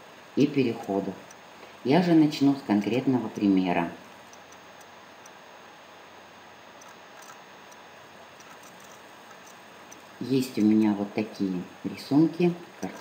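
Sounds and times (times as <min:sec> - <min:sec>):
faint ticks: 0:00.8 - 0:01.8, 0:04.1 - 0:05.4, 0:06.7 - 0:10.8.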